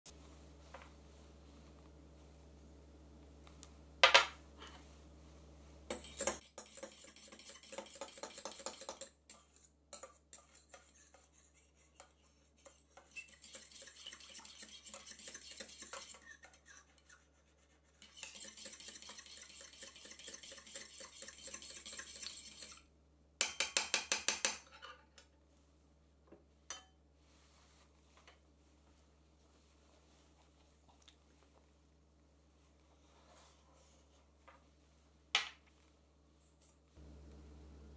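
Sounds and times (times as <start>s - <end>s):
fork whisking in metal cup: 5.9s - 22.9s.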